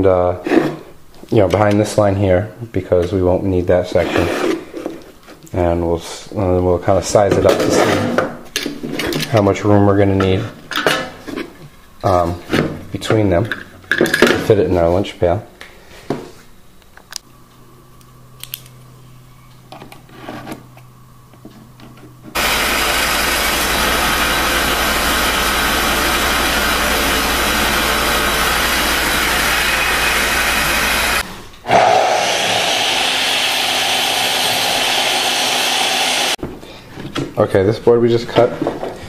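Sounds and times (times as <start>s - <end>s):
miter saw cutting wood: 22.4s - 36.4s
scroll saw running: 22.4s - 36.4s.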